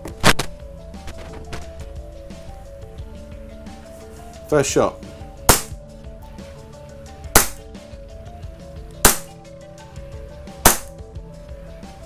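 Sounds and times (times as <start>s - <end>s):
airsoft pistol shots: 5.5s - 5.8s, 7.4s - 7.6s, 9.1s - 9.3s, 10.6s - 10.9s.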